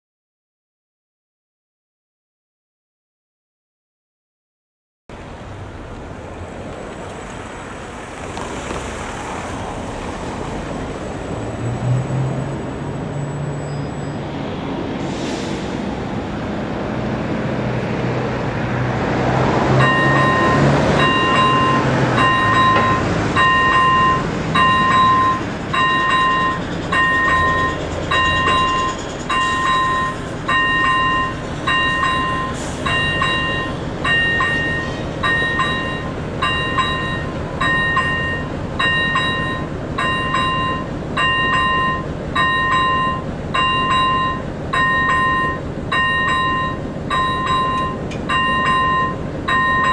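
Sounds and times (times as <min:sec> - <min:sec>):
level crossing warning bell: 0:19.8 - 0:49.9.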